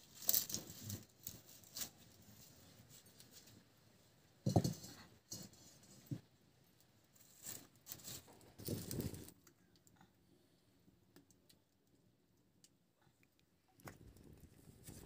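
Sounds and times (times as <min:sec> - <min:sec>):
dry twigs rustling: 0:00.0 - 0:03.7, 0:07.1 - 0:09.8.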